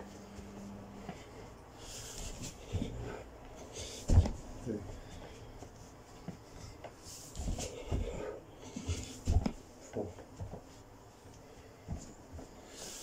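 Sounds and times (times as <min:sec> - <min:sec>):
hard breathing: 0:00.3 - 0:10.3, 0:11.2 - 0:13.0
thuds on carpeted floor: 0:03.8 - 0:04.4, 0:08.8 - 0:09.6.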